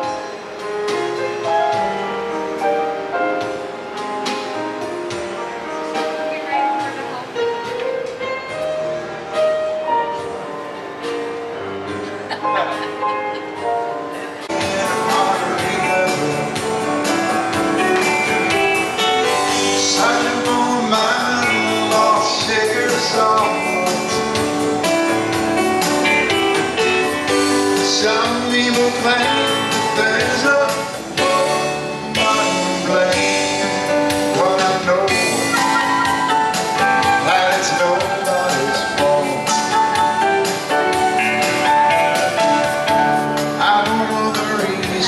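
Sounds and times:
stage piano playing: 0:00.0 - 0:45.0
man singing into microphone: 0:14.4 - 0:17.2, 0:19.2 - 0:24.8, 0:27.6 - 0:40.0, 0:43.4 - 0:45.0.

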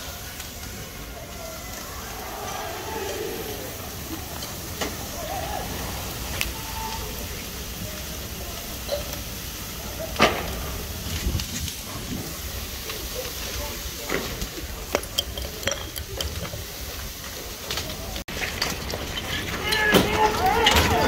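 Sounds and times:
faint voices: 0:00.0 - 0:21.0
fire crackling: 0:00.0 - 0:21.0.

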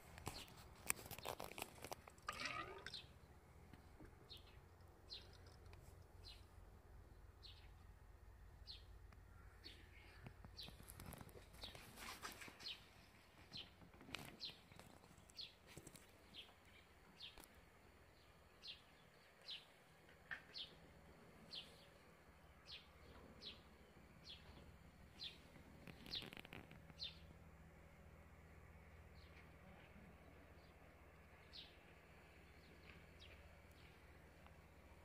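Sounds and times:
faint bird chirping: 0:02.4 - 0:08.0, 0:08.6 - 0:27.5.

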